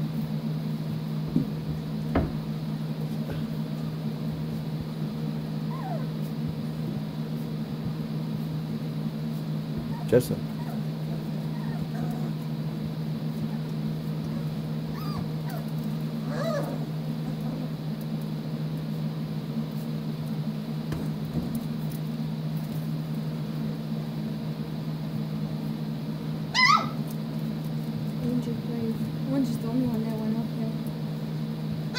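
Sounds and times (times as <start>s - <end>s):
steady low hum: 0.0s - 31.9s
puppies whining: 5.4s - 6.8s, 9.7s - 18.2s, 26.5s - 27.2s.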